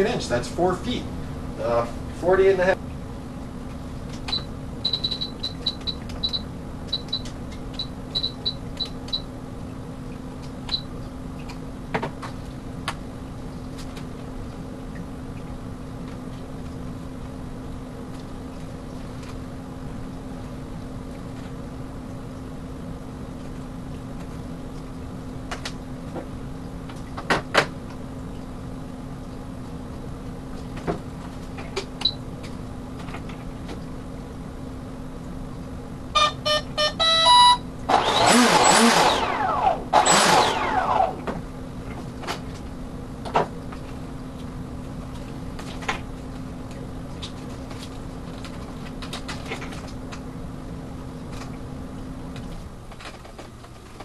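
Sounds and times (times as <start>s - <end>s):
steady low hum: 0.0s - 54.0s
motor whirring: 37.0s - 41.3s.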